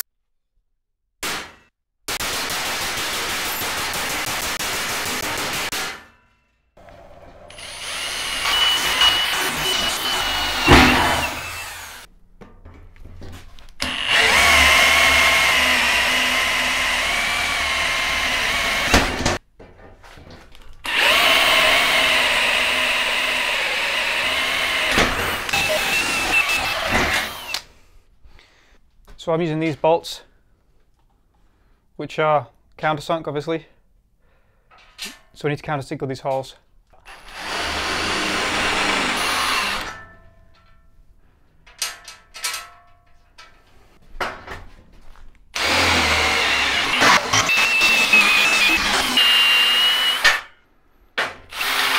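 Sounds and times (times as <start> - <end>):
electric drill boring through steel: 6.8 - 12.1, 13.8 - 19.4, 20.9 - 27.6, 37.0 - 40.0, 45.6 - 50.5, 51.5 - 51.9.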